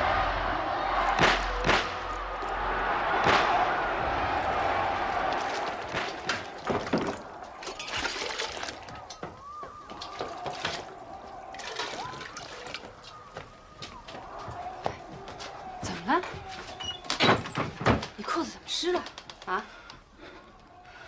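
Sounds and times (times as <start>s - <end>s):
water sloshing and pouring: 5.0s - 13.8s
metal utensils clinking: 6.4s - 12.9s.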